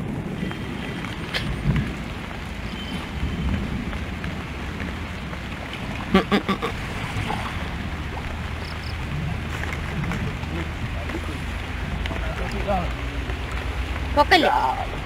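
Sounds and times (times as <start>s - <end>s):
wind noise on microphone: 0.0s - 12.4s.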